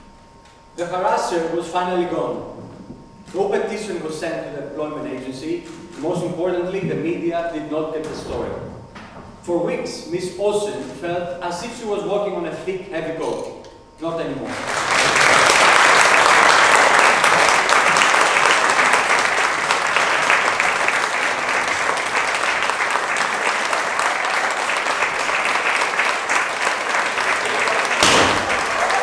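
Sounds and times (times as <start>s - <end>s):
audience applauding: 14.5s - 29.0s.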